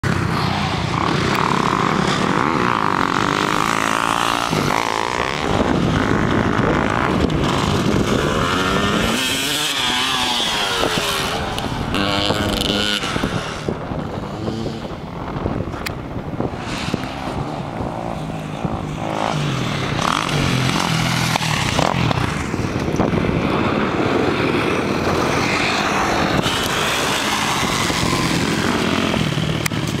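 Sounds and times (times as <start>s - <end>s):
dirt bike engine revving: 0.0s - 15.1s, 16.4s - 30.0s.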